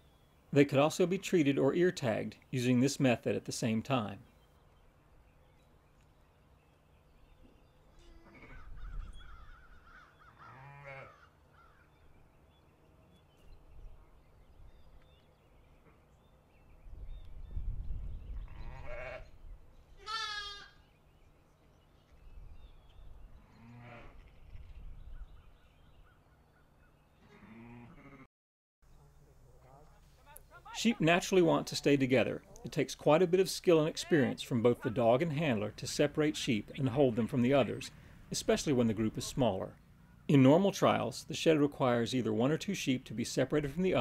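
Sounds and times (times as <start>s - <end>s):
sheep and lambs bleating: 10.3s - 11.3s, 18.4s - 19.4s, 20.0s - 20.8s, 23.4s - 24.2s, 27.2s - 28.3s.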